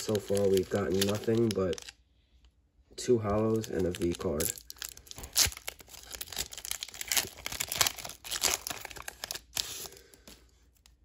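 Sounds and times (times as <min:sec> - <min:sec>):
foil wrapper tearing and crinkling: 0:00.0 - 0:02.0, 0:03.3 - 0:10.1.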